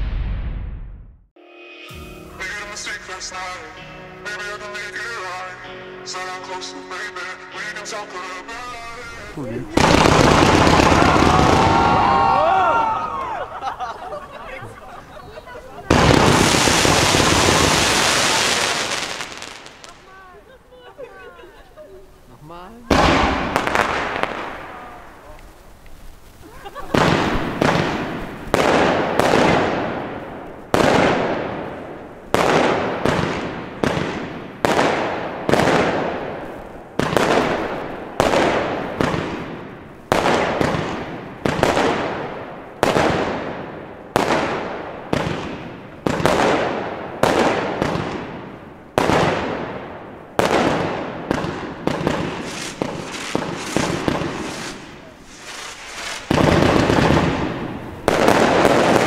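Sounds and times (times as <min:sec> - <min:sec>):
fireworks shots launching: 0:00.0 - 0:01.2, 0:09.0 - 0:12.5, 0:15.8 - 0:20.3, 0:22.8 - 0:59.0
fireworks bursting and crackling: 0:02.2 - 0:03.7, 0:07.6 - 0:59.0.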